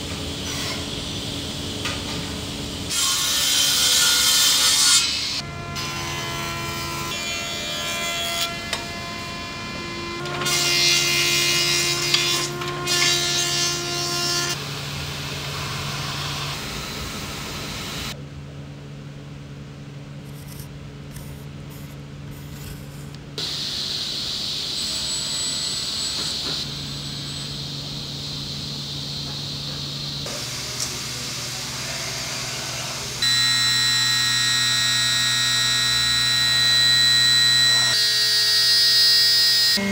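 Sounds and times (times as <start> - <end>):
workshop machinery hum: 0.0 - 39.9
thickness planer cutting wood: 30.4 - 39.8.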